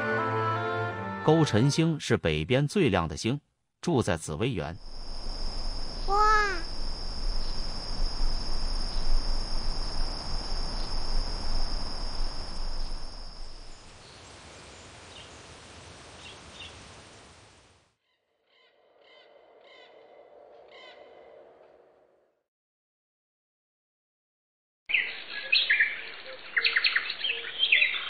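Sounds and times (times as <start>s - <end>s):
high insect trill: 4.4s - 13.9s
faint repeated bird calls: 16.2s - 16.9s, 18.0s - 21.7s, 24.9s - 28.0s
bird chirps: 24.9s - 28.0s.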